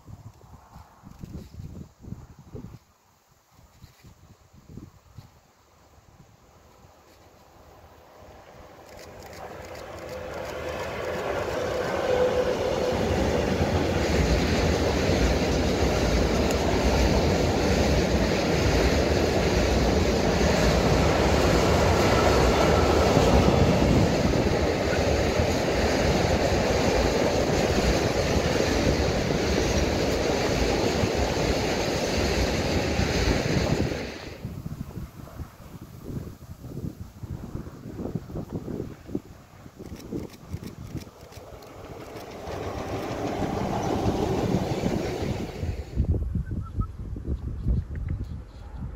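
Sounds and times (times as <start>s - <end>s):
freight train wheels clattering: 39.8s - 45.9s.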